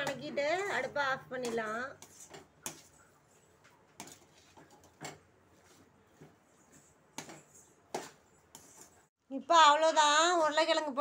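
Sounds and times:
spatula scraping metal pan: 0.0 - 5.8, 6.6 - 9.1.

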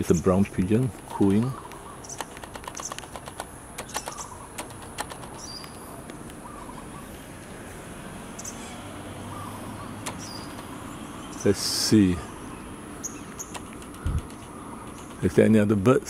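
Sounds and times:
sharp clicks: 1.0 - 6.4, 10.0 - 10.8, 13.2 - 15.7
high-pitched bird chirps: 3.8 - 4.6, 8.3 - 11.6.

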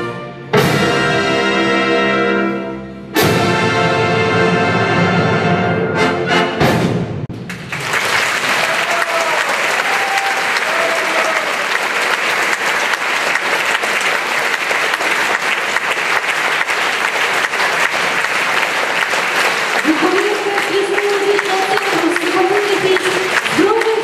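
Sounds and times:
audience applauding: 7.4 - 24.0.

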